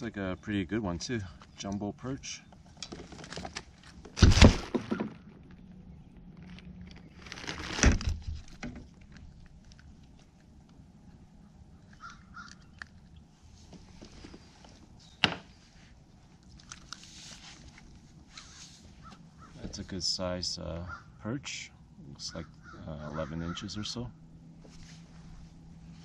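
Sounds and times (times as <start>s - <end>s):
handling thump: 4.1s - 5.3s
small clicks and rustles: 5.4s - 11.2s, 16.3s - 19.2s
bird calling: 11.3s - 13.0s, 18.3s - 19.7s, 20.8s - 21.2s, 22.2s - 24.2s.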